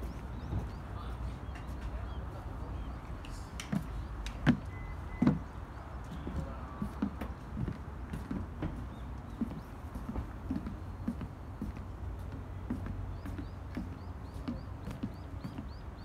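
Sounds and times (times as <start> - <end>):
footsteps on hard surface: 3.6 - 16.0.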